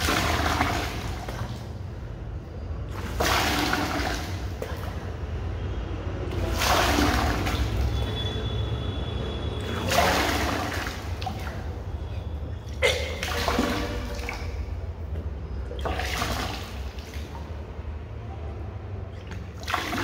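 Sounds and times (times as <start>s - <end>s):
water gushing and splashing: 0.0s - 2.1s, 2.8s - 8.5s, 9.5s - 14.8s, 15.7s - 18.0s, 19.0s - 20.0s.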